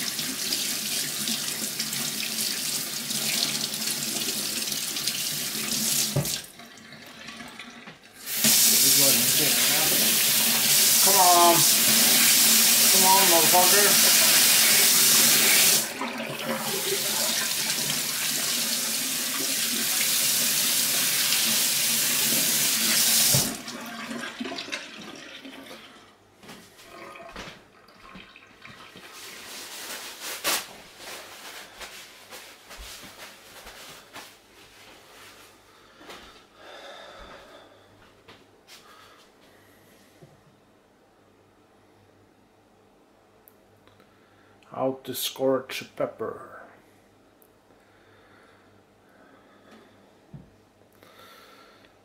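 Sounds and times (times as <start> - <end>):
water splashing in sink: 0.0 - 25.9, 26.9 - 30.3.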